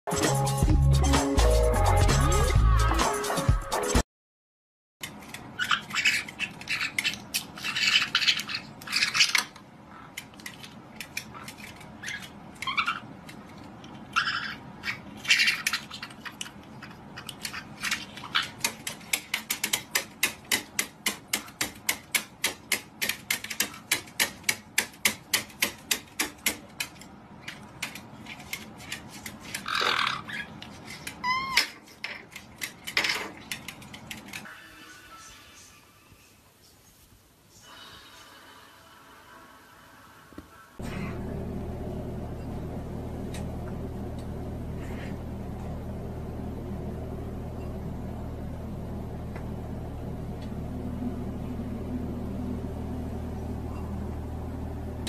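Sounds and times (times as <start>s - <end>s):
parrots squawking: 5.6s - 10.2s, 11.3s - 13.2s, 14.1s - 16.3s, 29.5s - 31.8s.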